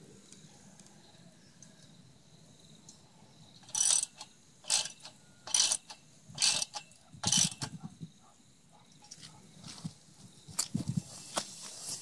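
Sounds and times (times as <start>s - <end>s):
ratchet spanner clicking: 3.6s - 7.8s.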